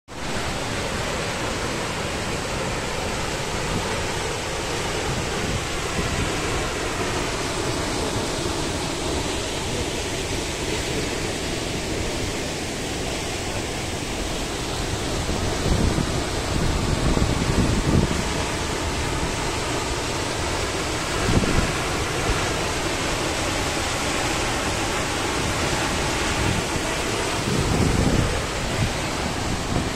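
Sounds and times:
waterfall crashing onto rock: 0:00.1 - 0:29.9
wind buffeting microphone: 0:14.7 - 0:29.9.

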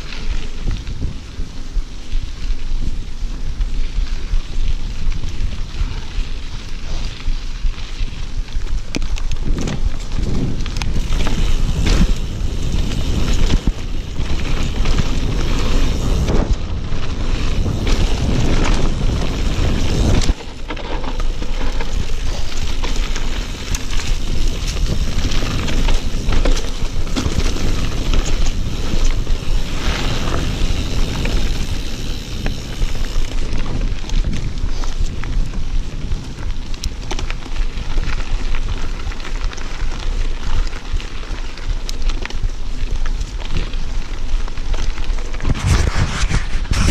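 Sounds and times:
wind buffeting on microphone: 0:00.0 - 0:39.0, 0:45.2 - 0:46.9
bike clicks and rattles: 0:00.0 - 0:46.9
tyre rumble on dirt: 0:04.9 - 0:41.4.

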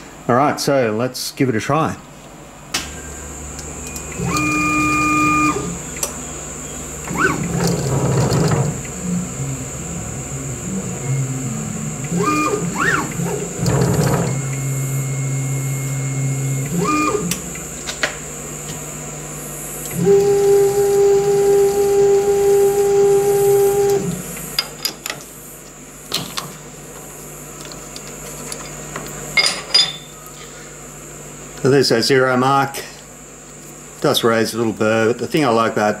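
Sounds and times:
stepper motors whining: 0:02.8 - 0:24.6.

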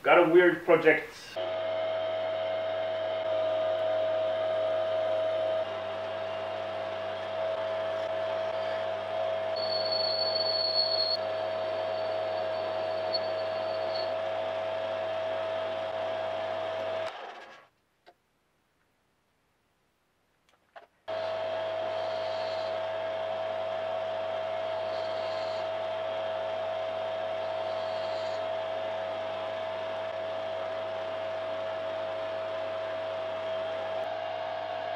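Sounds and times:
metal lathe motor whine: 0:01.4 - 0:17.1.

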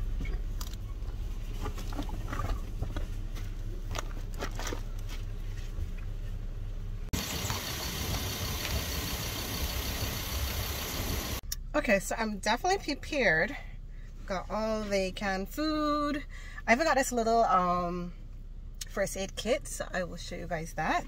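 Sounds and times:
outdoor noise rush: 0:00.0 - 0:11.9
low steady hum: 0:00.0 - 0:21.0.

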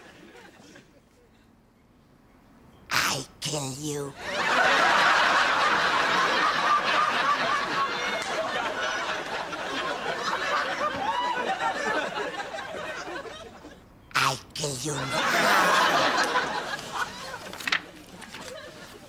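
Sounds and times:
audience laughing: 0:04.2 - 0:19.0.

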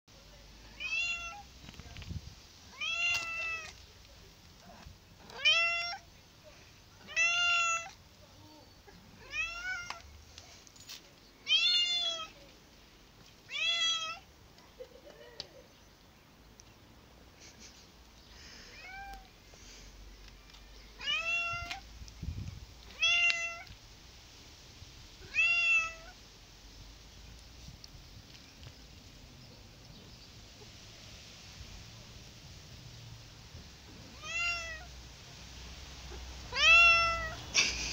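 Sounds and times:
cat meowing: 0:00.8 - 0:01.5, 0:02.7 - 0:03.8, 0:05.3 - 0:06.0, 0:07.0 - 0:08.0, 0:09.2 - 0:10.0, 0:11.4 - 0:12.4, 0:13.5 - 0:14.2, 0:21.0 - 0:21.8, 0:22.9 - 0:23.7, 0:25.2 - 0:26.2, 0:34.1 - 0:34.9, 0:36.5 - 0:37.4.

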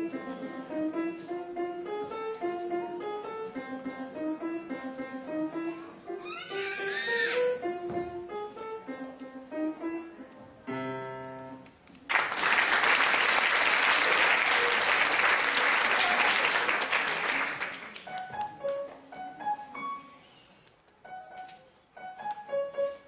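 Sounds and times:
grand piano notes and chord: 0:00.0 - 0:06.2, 0:07.4 - 0:11.6
audience applause: 0:12.1 - 0:18.1.

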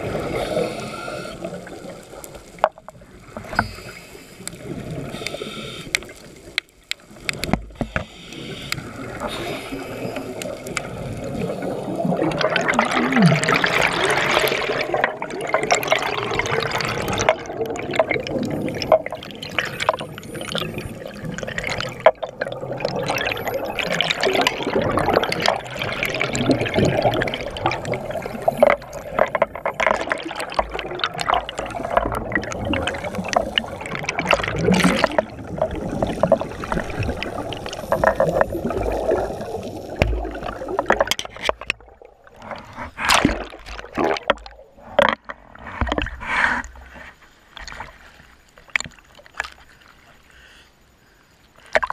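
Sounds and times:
underwater bubbles gurgling: 0:00.0 - 0:50.2.

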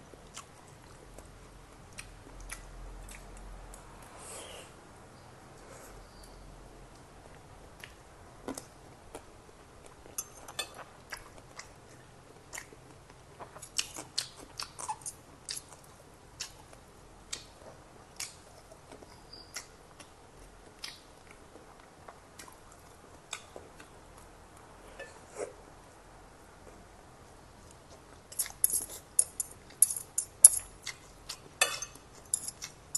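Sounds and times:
person chewing food: 0:00.2 - 0:03.9, 0:07.8 - 0:25.4.

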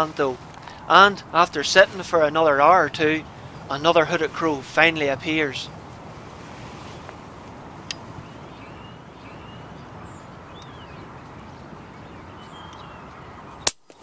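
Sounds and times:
wind-like noise: 0:00.0 - 0:14.0
high bird chirps: 0:07.9 - 0:13.7.

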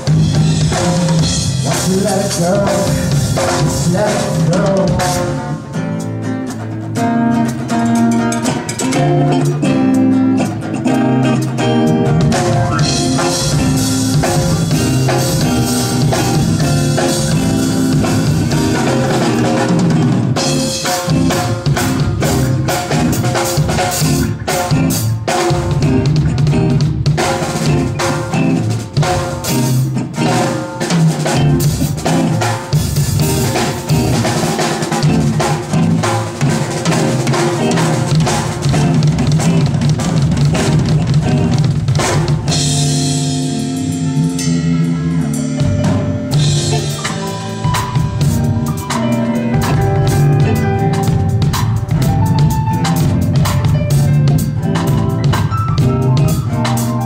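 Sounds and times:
live band playing: 0:00.0 - 0:57.0
snare and bass drum: 0:12.1 - 0:43.0.

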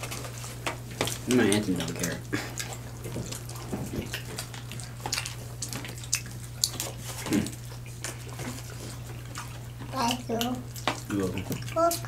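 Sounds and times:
people eating wet chewing: 0:00.0 - 0:12.0
steady low hum: 0:00.0 - 0:12.0.

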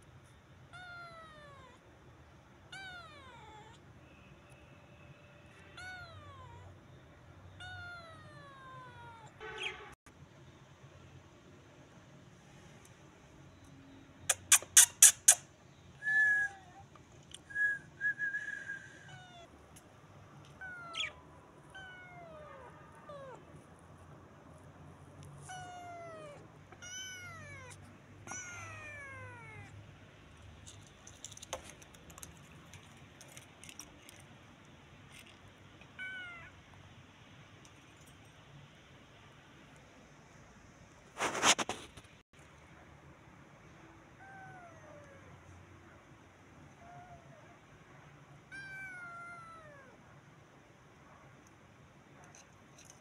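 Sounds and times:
kitten meowing: 0:00.7 - 0:01.8, 0:02.7 - 0:03.8, 0:05.8 - 0:06.7, 0:20.6 - 0:23.4, 0:25.4 - 0:29.7, 0:36.0 - 0:36.5, 0:48.5 - 0:49.9
whistle-like tones: 0:16.0 - 0:16.8, 0:17.4 - 0:19.1.

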